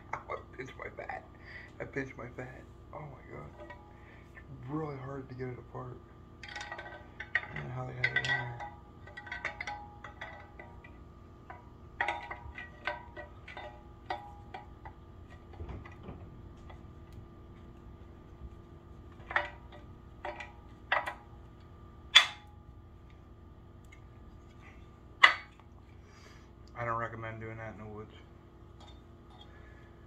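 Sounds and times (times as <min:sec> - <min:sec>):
metal sticks clicking and clacking: 0:06.4 - 0:16.8.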